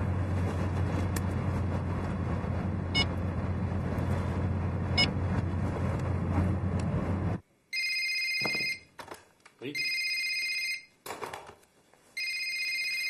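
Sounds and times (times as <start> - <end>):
car engine and road noise: 0.0 - 7.5.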